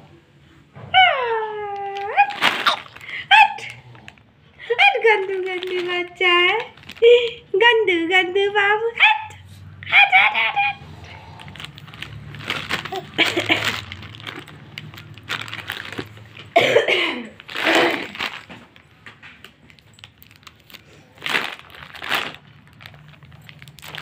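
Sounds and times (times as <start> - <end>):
plastic wrappers crinkling: 1.7 - 7.5, 11.1 - 24.0
baby vocalizing: 12.7 - 13.3.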